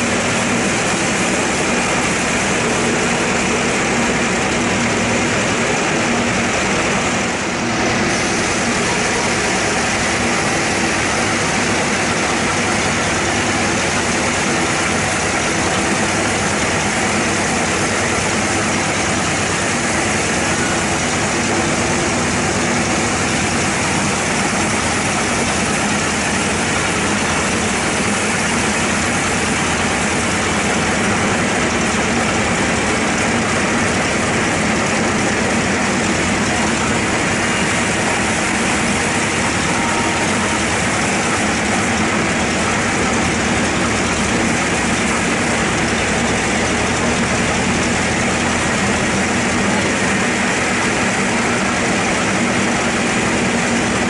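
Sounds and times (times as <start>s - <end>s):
band saw cutting log: 0.0s - 54.0s.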